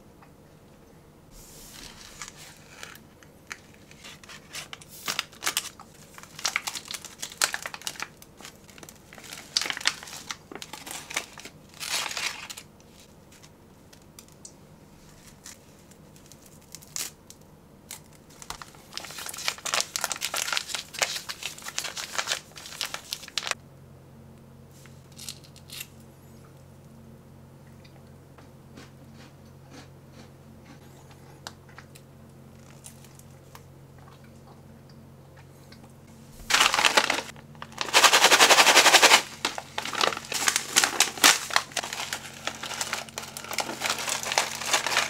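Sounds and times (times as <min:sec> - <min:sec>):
foil pouches crinkling and tearing: 0:01.8 - 0:14.4, 0:15.0 - 0:23.6, 0:36.4 - 0:45.0.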